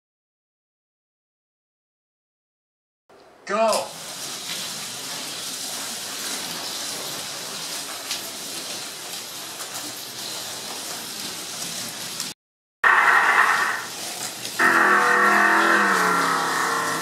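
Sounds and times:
slot car electric motors hissing: 12.9s - 17.0s.

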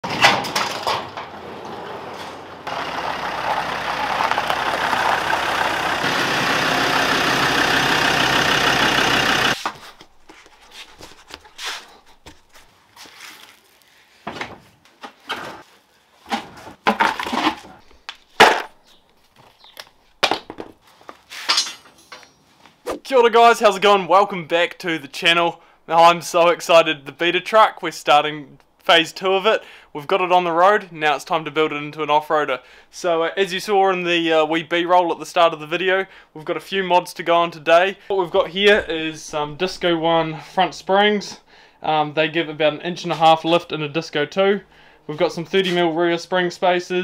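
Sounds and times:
knocks and clunks of handled parts: 0.0s - 1.4s, 21.4s - 22.4s.

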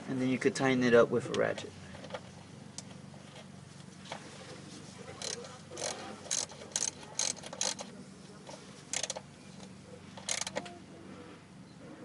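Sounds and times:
hand ratchet clicking: 5.2s - 7.9s, 8.9s - 9.2s, 10.2s - 10.6s.

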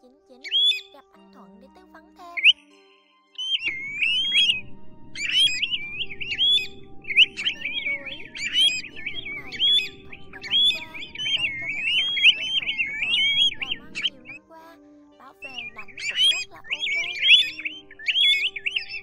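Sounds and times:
plovers whistling calls: 3.4s - 14.4s, 15.4s - 19.0s.

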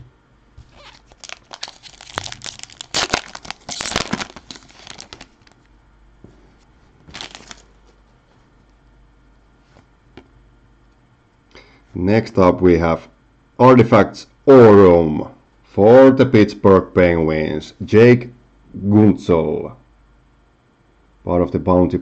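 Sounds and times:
foil wrapper tearing and crinkling: 0.7s - 5.6s, 7.1s - 7.7s.

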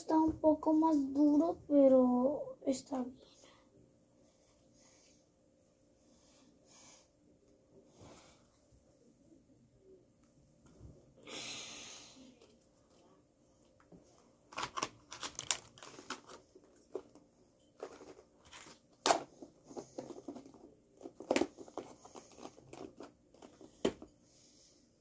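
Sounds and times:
playdough crinkling in plastic tub: 14.4s - 24.0s.

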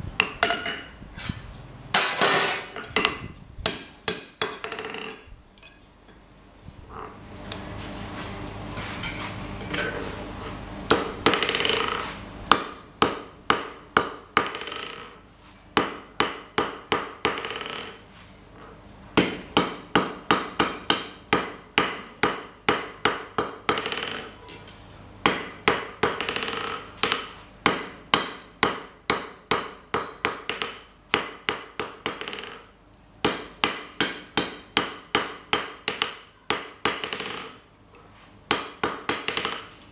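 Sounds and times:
hammer striking steel on anvil: 33.3s - 37.4s.

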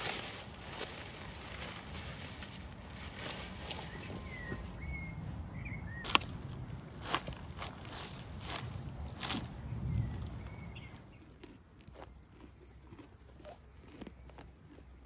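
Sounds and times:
reed stalks rustling: 0.0s - 13.1s
faint bird chirps: 3.7s - 6.2s.

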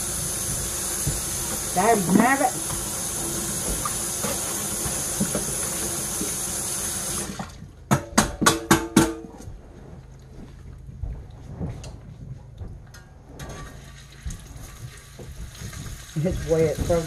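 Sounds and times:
sink tap running: 0.0s - 7.6s, 14.0s - 17.0s
sharp knocks: 7.9s - 9.4s.

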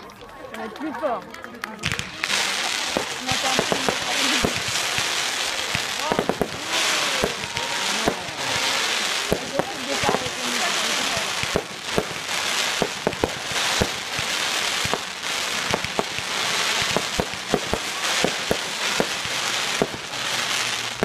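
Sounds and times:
fireworks crackling hiss: 1.6s - 21.0s
fireworks shells banging: 1.8s - 8.6s.

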